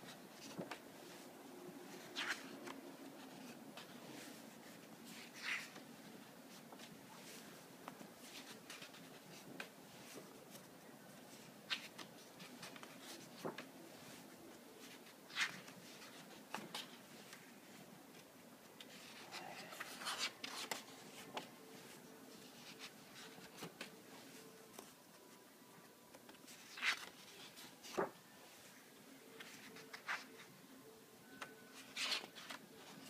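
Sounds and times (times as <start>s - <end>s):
page turning: 2.0s - 5.9s, 11.7s - 13.7s, 14.8s - 17.4s, 18.8s - 22.0s, 22.6s - 25.0s, 26.2s - 28.2s, 29.3s - 30.5s, 31.8s - 33.0s
paper rustling: 2.0s - 25.3s, 26.2s - 28.7s, 29.3s - 30.5s, 31.4s - 33.0s.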